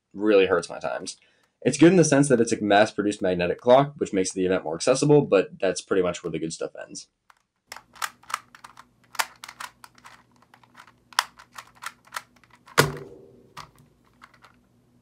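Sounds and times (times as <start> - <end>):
puzzle clicking: 7.3 - 14.6
puzzle thumping down: 7.7 - 14.5.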